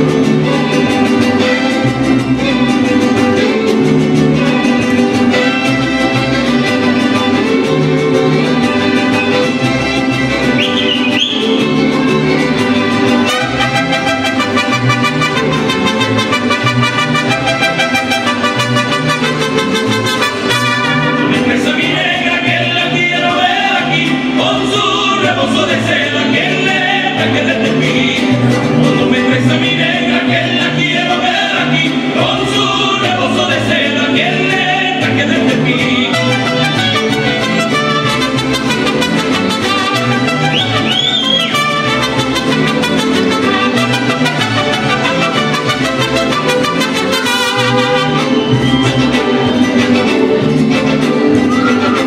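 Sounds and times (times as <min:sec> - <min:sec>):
violins melody: 0:00.0 - 0:25.1, 0:34.6 - 0:52.0
bass guitar notes: 0:00.0 - 0:52.0
mariachi band playing: 0:00.0 - 0:52.0
trumpets: 0:13.2 - 0:21.6, 0:36.0 - 0:50.2
men singing together: 0:21.2 - 0:36.4
violins: 0:35.9 - 0:52.0.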